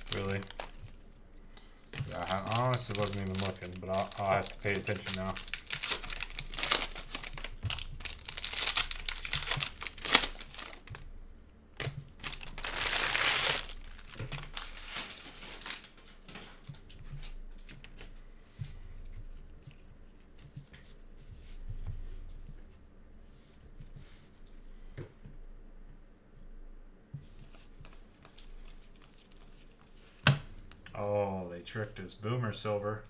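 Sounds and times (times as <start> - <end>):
card handling: 0.0 - 1.0, 2.0 - 11.0
foil wrappers crinkling and tearing: 0.0 - 1.0, 2.0 - 11.1, 12.1 - 17.7.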